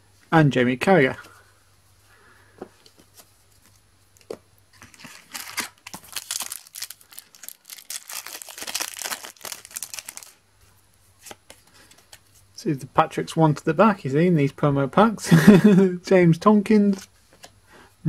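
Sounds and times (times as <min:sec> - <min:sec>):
foil packet crinkling: 0:04.8 - 0:10.4.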